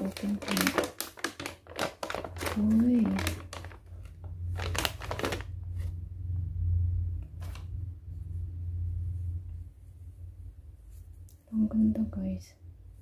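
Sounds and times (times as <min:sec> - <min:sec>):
plastic pouch rustling: 0:00.0 - 0:05.9
steady low hum: 0:03.0 - 0:13.0.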